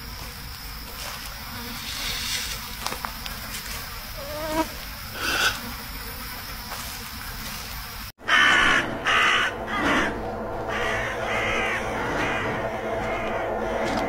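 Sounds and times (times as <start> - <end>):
insects buzzing: 0.0 - 14.0
brief hiss: 1.7 - 2.7.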